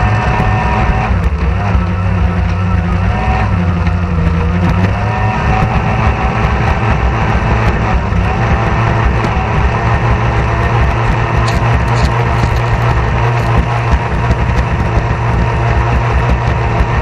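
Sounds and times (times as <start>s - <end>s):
other boat outboards wavering: 0.0s - 17.0s
outboard racing engine running: 0.0s - 17.0s.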